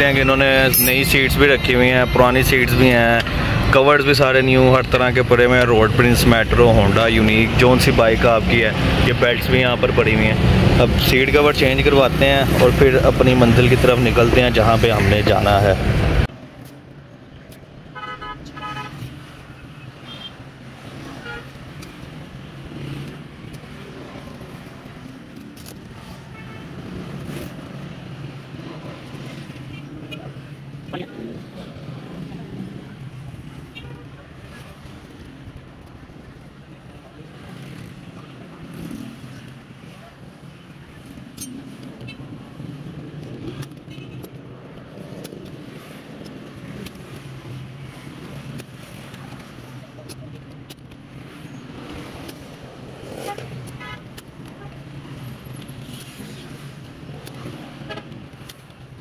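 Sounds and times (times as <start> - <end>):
traffic engine rumble: 0.0 - 59.0
vehicle horn beeps: 18.0 - 18.9, 20.1 - 20.3.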